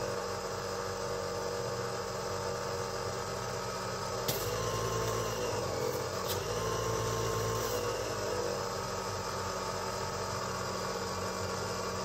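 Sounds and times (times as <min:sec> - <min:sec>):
steady hum: 0:02.6 - 0:12.0.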